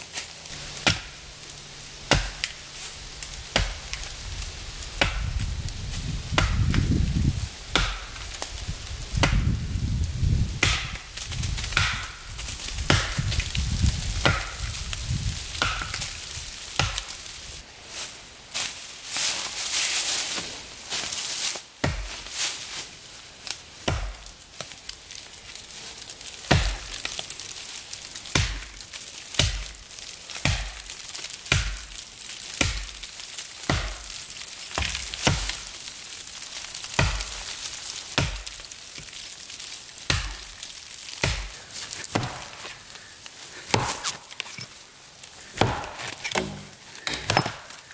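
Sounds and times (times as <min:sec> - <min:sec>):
axe chopping into tree trunk: 0:00.7 - 0:01.2, 0:02.1 - 0:02.6, 0:03.4 - 0:04.0, 0:05.0 - 0:05.4, 0:06.3 - 0:07.0, 0:07.7 - 0:08.4, 0:09.2 - 0:09.6, 0:10.6 - 0:12.2, 0:12.9 - 0:13.5, 0:14.2 - 0:14.8, 0:15.5 - 0:16.1, 0:16.8 - 0:17.1, 0:21.8 - 0:22.1, 0:26.5 - 0:26.9, 0:28.3 - 0:28.7, 0:31.4 - 0:31.8, 0:33.7 - 0:34.1, 0:34.7 - 0:35.6, 0:36.9 - 0:37.4, 0:40.0 - 0:40.4, 0:41.2 - 0:42.7, 0:43.7 - 0:44.6, 0:45.5 - 0:47.8.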